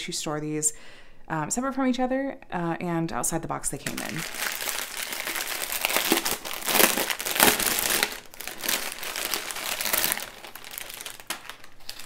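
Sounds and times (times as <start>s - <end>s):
plastic bags crinkling: 3.8s - 12.0s.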